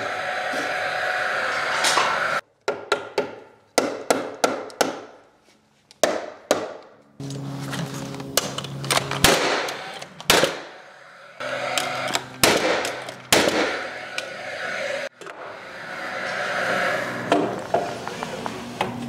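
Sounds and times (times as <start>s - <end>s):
tool fan whirring: 0.0s - 2.4s, 7.2s - 19.0s
nail gun shots: 9.2s - 10.7s, 12.4s - 13.8s.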